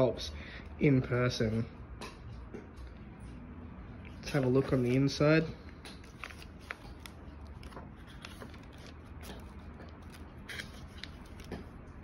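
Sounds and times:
book pages rustling: 4.3s - 12.0s.

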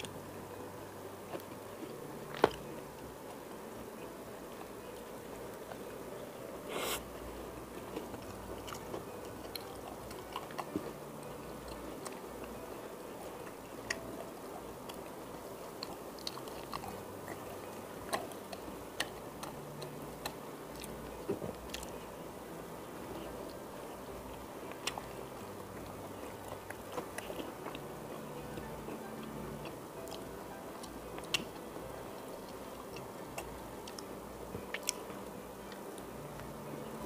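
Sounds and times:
person chewing food: 7.8s - 14.0s, 14.6s - 22.1s, 23.2s - 36.0s.

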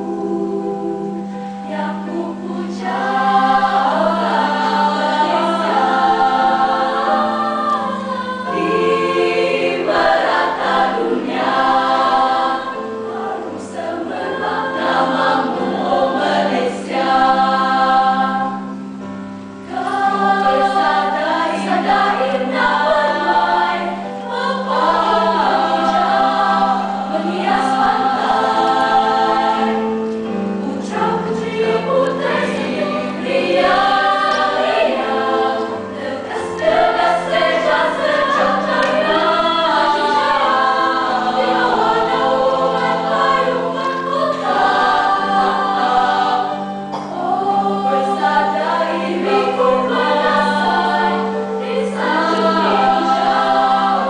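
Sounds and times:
female choir singing: 0.0s - 54.0s.

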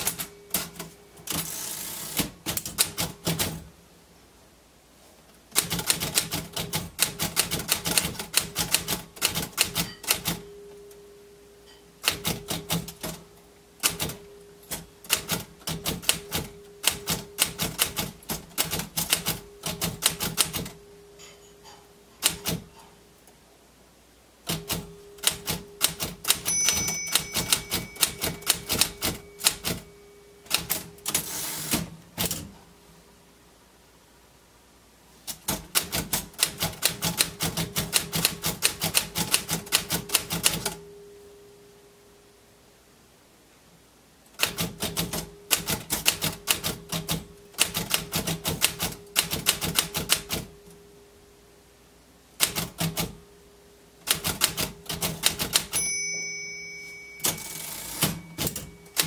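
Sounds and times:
typewriter bell ring: 0.0s - 2.2s, 7.2s - 10.8s, 11.6s - 13.2s, 13.9s - 22.8s, 24.5s - 31.7s, 54.2s - 59.0s
manual typewriter typing: 0.0s - 3.7s, 5.5s - 10.5s, 12.0s - 13.2s, 13.8s - 20.8s, 22.2s - 22.8s, 24.4s - 32.5s, 35.3s - 40.8s, 44.3s - 50.6s, 52.4s - 53.2s, 54.0s - 55.9s, 57.2s - 59.0s.

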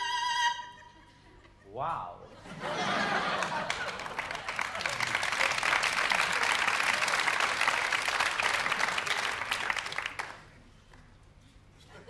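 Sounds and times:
audience applauding: 2.8s - 10.6s.

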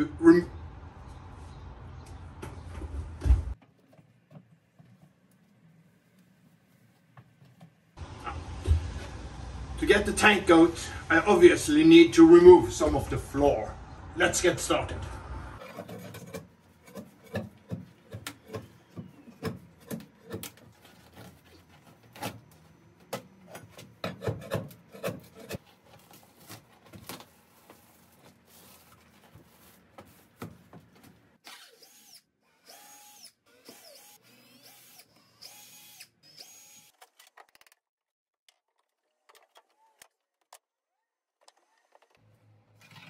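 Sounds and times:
pry bar knocking and scraping: 15.6s - 22.4s, 23.1s - 25.7s
cordless drill whirring: 31.4s - 37.0s.

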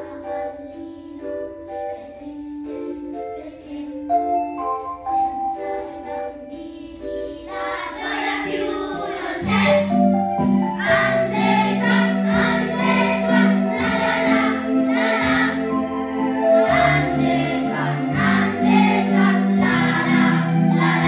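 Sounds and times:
children's choir singing: 0.0s - 21.0s
instrumental melody: 0.0s - 21.0s
lower accompaniment: 5.6s - 21.0s.

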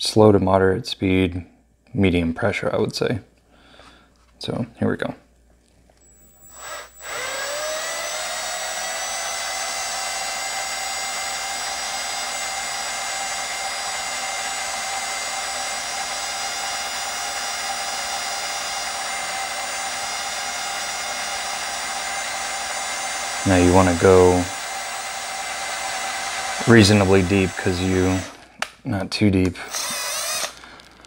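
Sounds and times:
electric drill whining: 6.0s - 28.5s, 29.6s - 31.0s.

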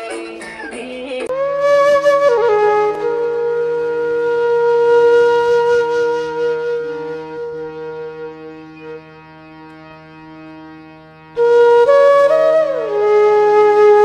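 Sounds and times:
person singing: 0.0s - 1.3s
flute playing: 1.3s - 14.0s.

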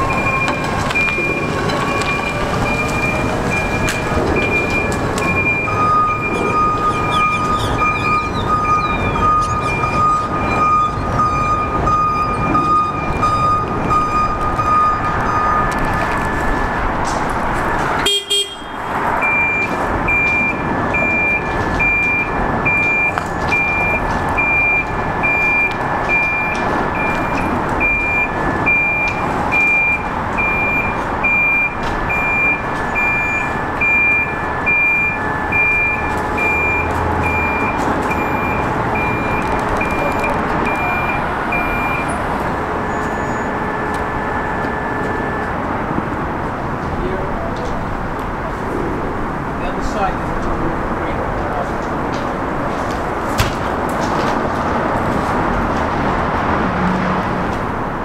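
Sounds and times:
backup alarm beeping: 0.0s - 17.0s, 18.0s - 46.2s
engine running: 0.0s - 58.0s.

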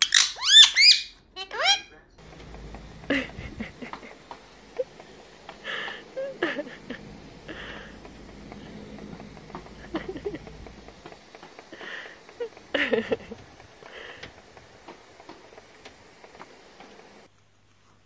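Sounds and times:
parrot low calls: 0.0s - 1.9s
water sprayer hissing: 2.2s - 17.3s.

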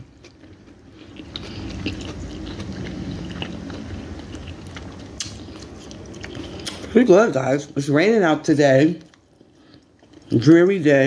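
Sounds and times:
person chewing food: 0.0s - 7.0s, 9.0s - 10.6s.

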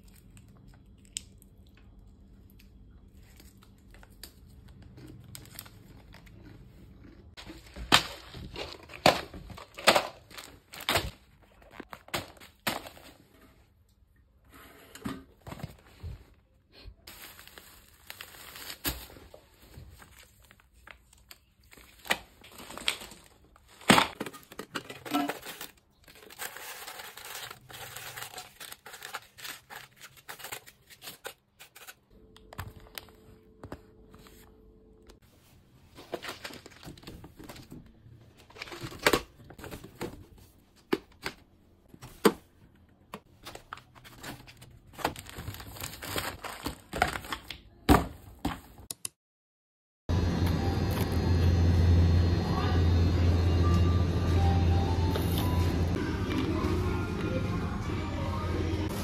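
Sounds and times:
snack packaging crinkling: 17.1s - 33.1s, 43.5s - 47.6s.

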